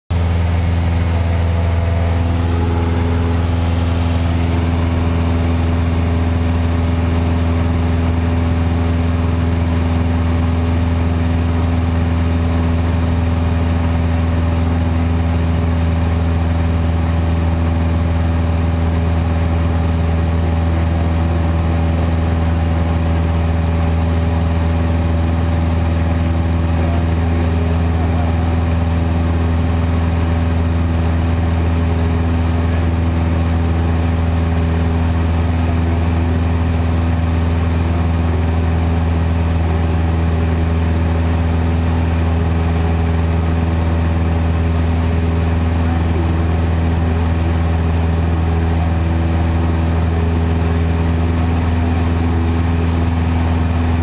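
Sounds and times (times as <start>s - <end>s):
airplane engine droning: 0.1s - 54.0s.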